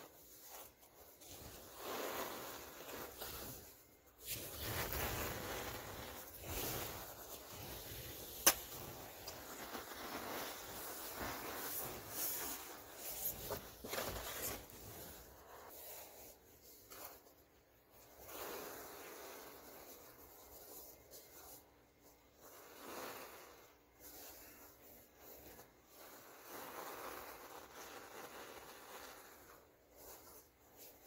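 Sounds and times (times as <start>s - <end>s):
powder rustling: 0.0s - 31.0s
powder pouring into plastic tub: 4.4s - 12.8s, 26.0s - 30.1s.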